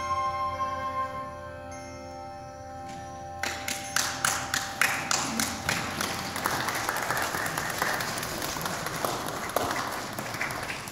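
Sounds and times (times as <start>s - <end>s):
handbell tone: 0.0s - 5.8s
crowd applauding: 3.4s - 10.9s.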